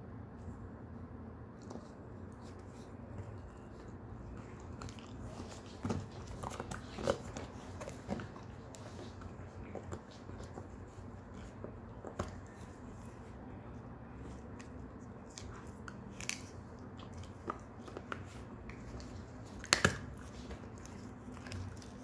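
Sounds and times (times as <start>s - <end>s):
dog teeth gnawing horn: 3.7s - 12.7s.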